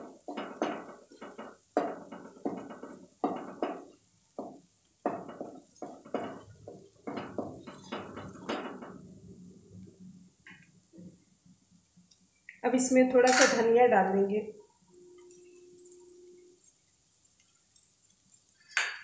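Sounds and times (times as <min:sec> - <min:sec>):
wooden spatula scraping a pan: 0:00.0 - 0:09.2.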